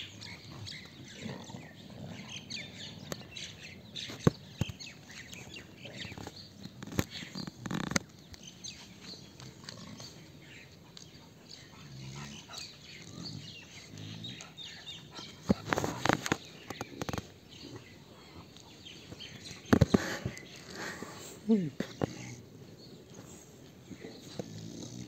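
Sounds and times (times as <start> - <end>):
puppies soft low vocal sounds: 8.4 - 25.0.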